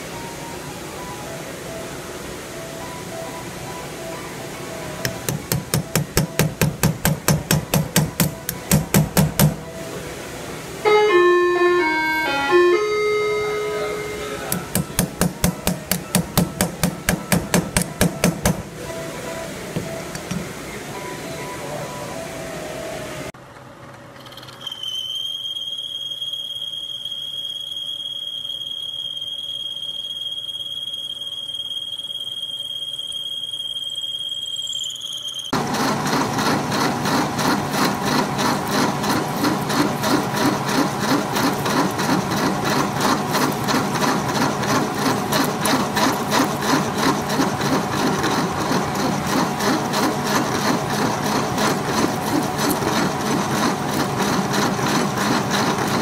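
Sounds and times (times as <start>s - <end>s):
high-pitched machine whine: 0.0s - 23.4s, 24.1s - 56.0s
milling machine cutting metal: 5.0s - 9.7s, 11.2s - 18.9s, 35.6s - 56.0s.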